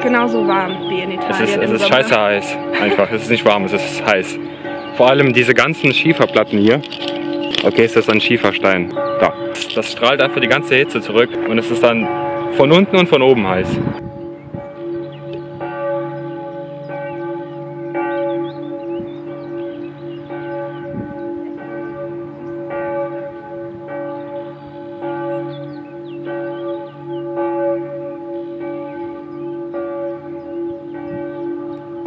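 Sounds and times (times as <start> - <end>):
church bells pealing: 0.0 - 32.0.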